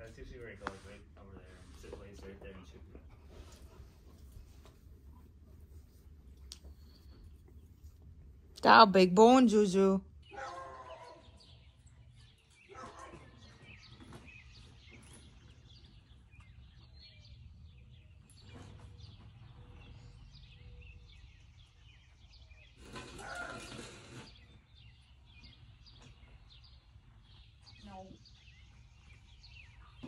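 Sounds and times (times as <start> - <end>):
bird chirps: 9.4 - 30.0.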